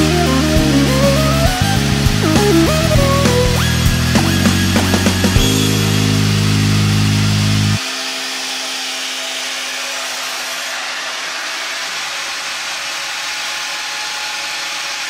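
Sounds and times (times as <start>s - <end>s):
music track: 0.0s - 10.5s
bandsaw running: 0.0s - 15.0s.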